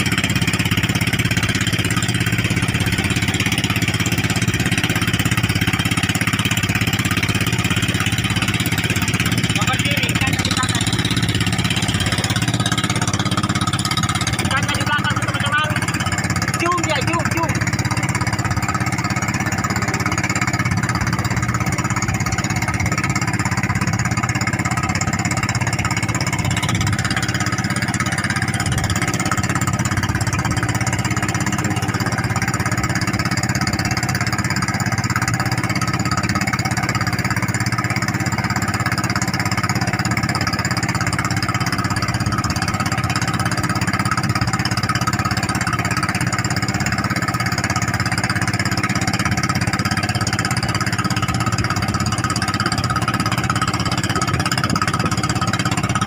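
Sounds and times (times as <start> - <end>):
boat engine running: 0.0 - 56.0.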